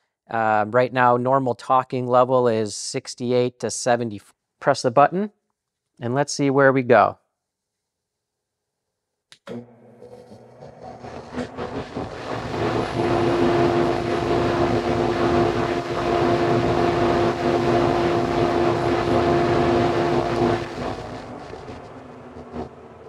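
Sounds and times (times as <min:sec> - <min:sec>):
dust collector humming: 0:09.5 - 0:23.0.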